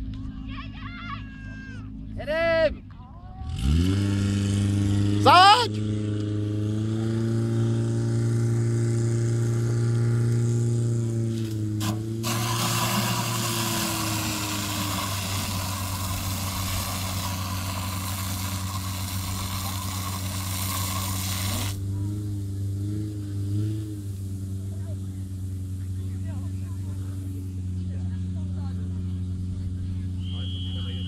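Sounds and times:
pump engine running at high revs: 0:03.5 - 0:31.0
water jets hissing: 0:11.8 - 0:27.5.

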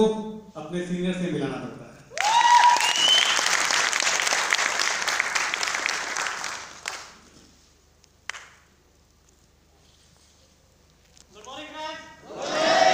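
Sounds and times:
audience applauding: 0:02.2 - 0:07.2.

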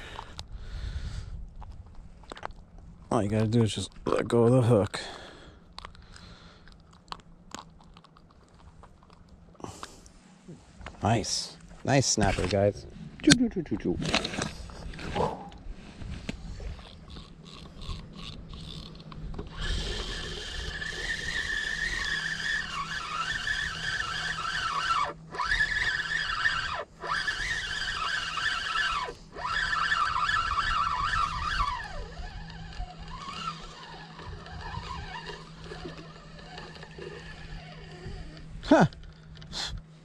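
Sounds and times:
motor engine whining: 0:12.2 - 0:40.0.

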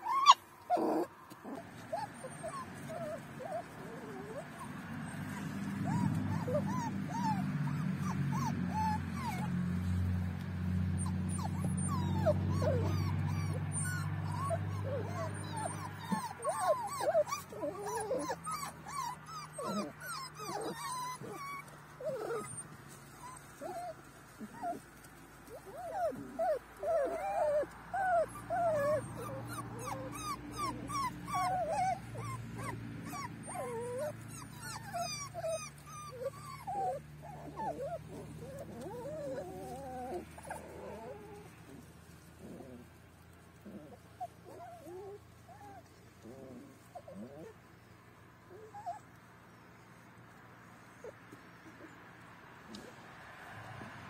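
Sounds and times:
puppies whimpering and squeaking: 0:00.0 - 0:52.1.

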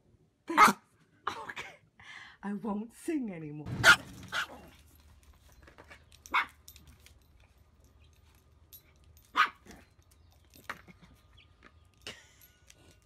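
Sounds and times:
small dog barking: 0:06.3 - 0:06.6, 0:09.3 - 0:09.8.

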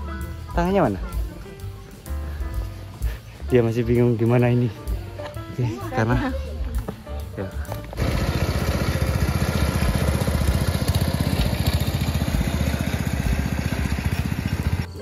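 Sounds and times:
small petrol engine running: 0:07.7 - 0:15.0.

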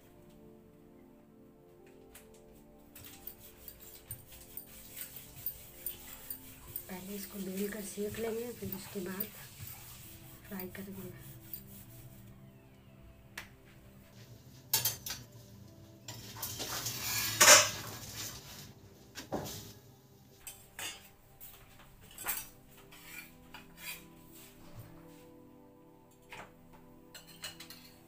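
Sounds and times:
kitchen utensils clattering: 0:14.7 - 0:15.3, 0:16.0 - 0:18.7, 0:20.4 - 0:21.2, 0:22.0 - 0:24.1, 0:27.1 - 0:28.0.

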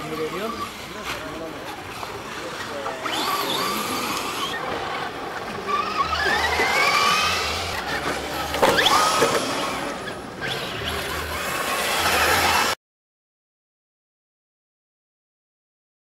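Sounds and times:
rc car motors whining: 0:00.0 - 0:12.8
toy car tumbling clatter: 0:03.1 - 0:10.2.

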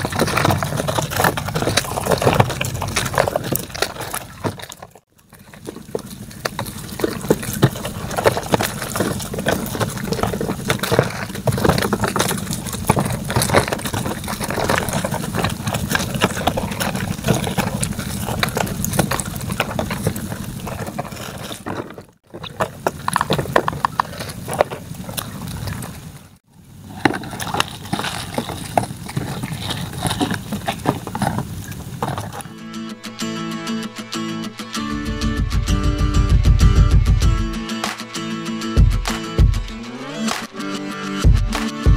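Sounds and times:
wet crackling of shrimp and crabs: 0:00.0 - 0:32.6.

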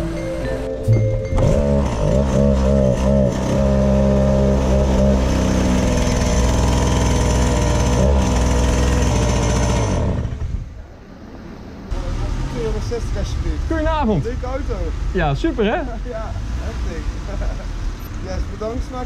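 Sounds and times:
two-stroke engine running: 0:01.3 - 0:10.5.

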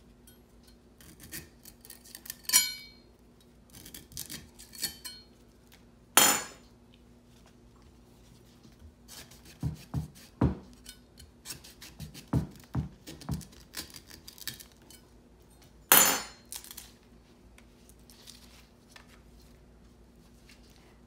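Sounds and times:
knife chopping stalk: 0:09.1 - 0:10.8, 0:11.4 - 0:14.6
knife clattering down: 0:15.9 - 0:16.4.

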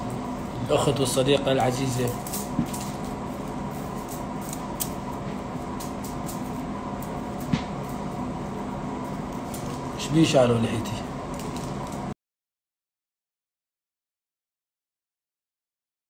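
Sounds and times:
air conditioner humming: 0:00.0 - 0:12.2.

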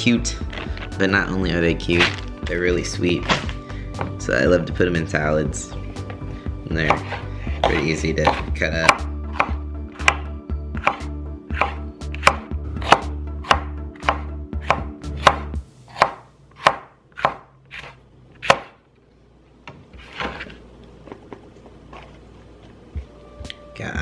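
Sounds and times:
knife chopping on wooden board: 0:06.8 - 0:18.8.

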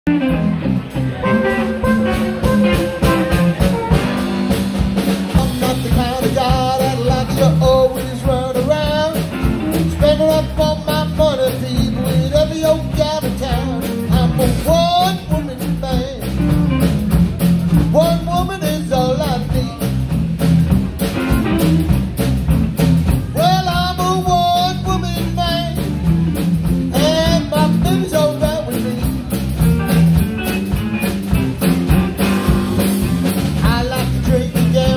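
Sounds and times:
bass guitar: 0:00.0 - 0:34.9
drum kit: 0:00.1 - 0:34.9
electric guitar: 0:00.1 - 0:34.9
harmonica: 0:01.2 - 0:04.6
man singing lead vocal: 0:05.3 - 0:16.6, 0:17.9 - 0:20.0, 0:23.4 - 0:25.9, 0:26.9 - 0:29.3, 0:33.6 - 0:34.9.

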